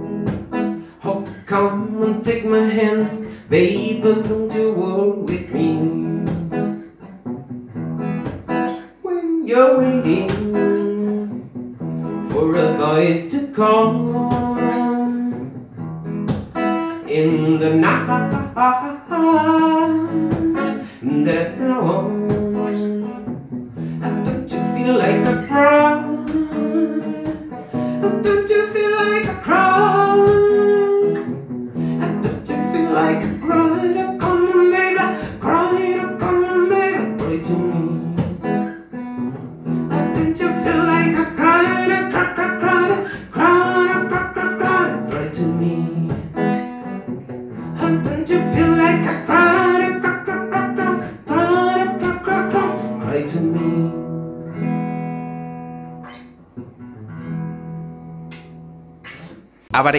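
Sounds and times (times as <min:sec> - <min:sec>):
strummed acoustic guitar: 0:00.0 - 0:59.9
man singing: 0:00.7 - 0:06.8, 0:08.6 - 0:11.4, 0:12.0 - 0:15.5, 0:16.8 - 0:23.3, 0:24.0 - 0:31.3, 0:32.0 - 0:38.6, 0:39.9 - 0:46.6, 0:47.7 - 0:54.2.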